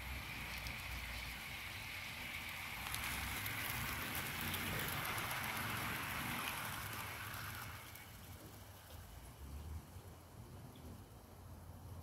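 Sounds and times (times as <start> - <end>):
model wagons rattling on rails: 0.0 - 9.4.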